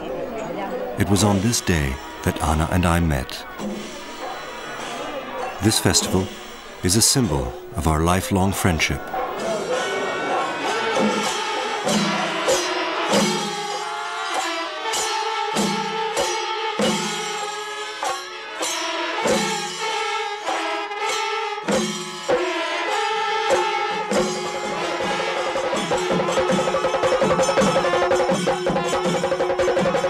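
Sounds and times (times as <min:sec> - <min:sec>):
brass horns holding long notes: 0:09.6 - 0:21.4.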